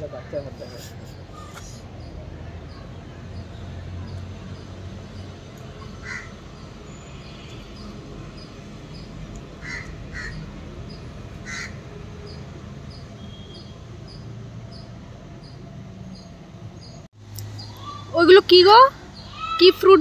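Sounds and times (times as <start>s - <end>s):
crow cawing: 6.0s - 6.4s, 9.6s - 10.4s, 11.4s - 11.8s.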